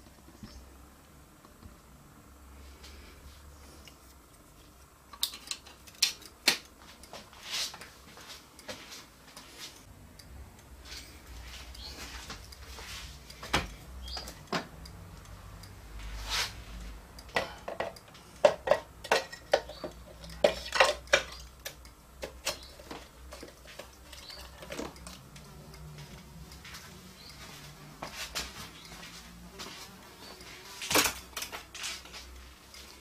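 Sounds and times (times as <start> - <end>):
metal parts clicking and clinking: 5.1 - 6.4.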